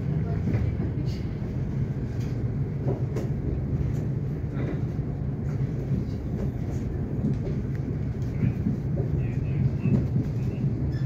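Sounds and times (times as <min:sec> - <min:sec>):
train wheels rumbling on track: 0:00.0 - 0:11.0.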